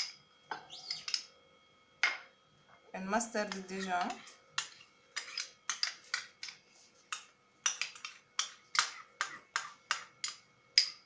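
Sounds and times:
spoon scraping ceramic bowl: 0:00.0 - 0:01.3, 0:03.4 - 0:10.1.

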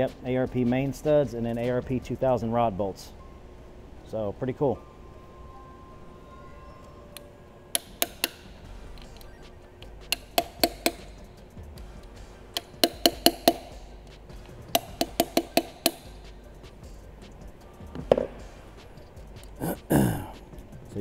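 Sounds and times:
hammer tapping on metal bolts: 0:07.7 - 0:11.3, 0:12.5 - 0:16.3.

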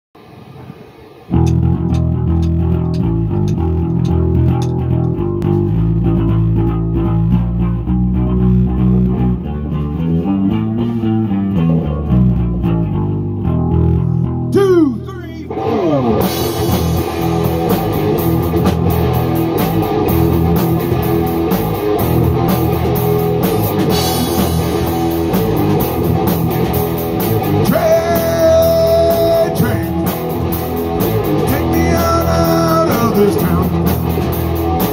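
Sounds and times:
electric guitar: 0:00.2 - 0:34.9
drum kit: 0:01.3 - 0:06.3, 0:15.5 - 0:34.9
bass guitar: 0:01.3 - 0:34.9.

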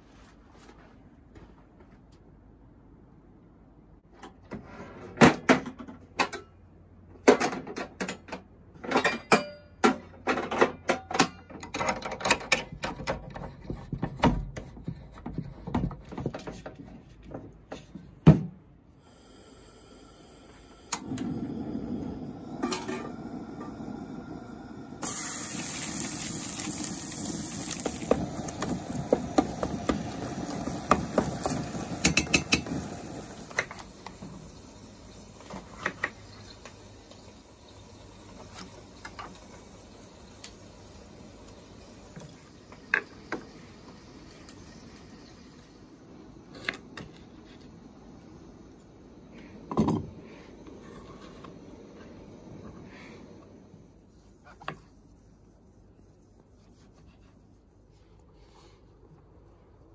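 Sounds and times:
camp stove gas hissing: 0:19.0 - 0:54.8
meat sizzling in a pot: 0:19.2 - 0:46.0.

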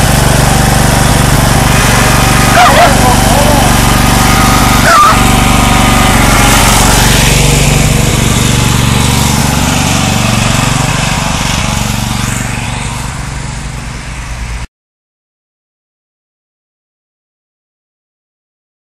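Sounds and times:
riding mower engine running: 0:00.0 - 0:14.7.

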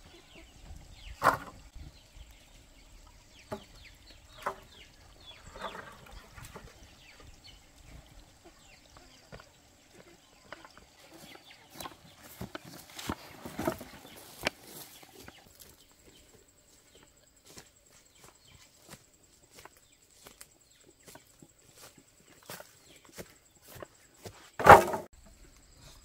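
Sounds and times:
chickens clucking: 0:00.0 - 0:17.2
wooden poles knocking together: 0:01.2 - 0:01.7, 0:03.5 - 0:04.8, 0:11.7 - 0:14.7, 0:24.6 - 0:25.1.

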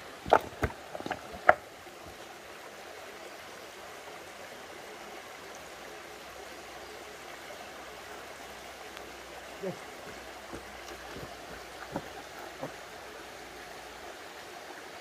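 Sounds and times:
stream flowing over stones: 0:00.0 - 0:15.0.

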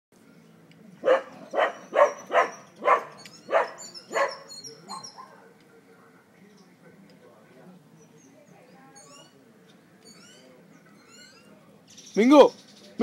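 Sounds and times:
dog barking: 0:01.0 - 0:05.6
faint high chirping: 0:01.5 - 0:05.4.

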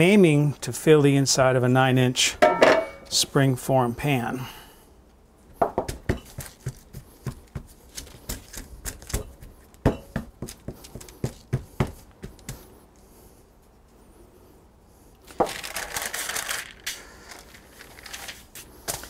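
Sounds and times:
hands patting dough: 0:05.5 - 0:12.8
paper rustling: 0:06.3 - 0:09.2, 0:15.2 - 0:19.0.

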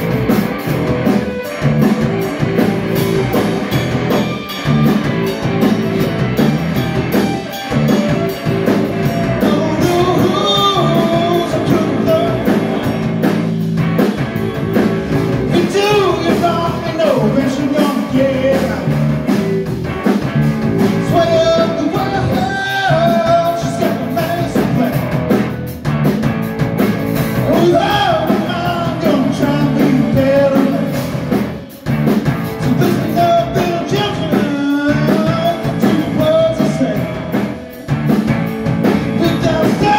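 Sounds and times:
bass guitar: 0:00.0 - 0:39.9
drum kit: 0:00.0 - 0:39.9
electric guitar: 0:00.0 - 0:39.9
man singing: 0:08.0 - 0:13.4, 0:15.4 - 0:19.7, 0:20.8 - 0:25.4, 0:27.4 - 0:31.4, 0:32.6 - 0:37.7, 0:38.9 - 0:39.9.

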